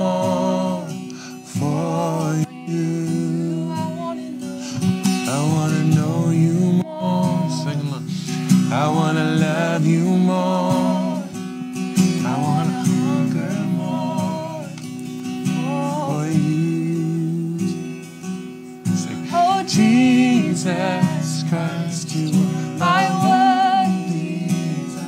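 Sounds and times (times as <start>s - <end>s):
acoustic guitar strumming: 0.0s - 25.0s
young woman singing: 2.0s - 4.8s, 6.3s - 7.8s, 10.7s - 11.3s, 12.3s - 14.8s, 15.5s - 16.3s, 19.2s - 21.6s, 22.7s - 25.0s.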